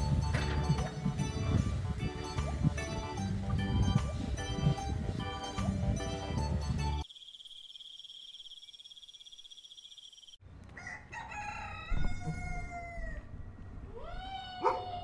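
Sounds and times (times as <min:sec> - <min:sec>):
rooster crowing: 0:10.8 - 0:13.4.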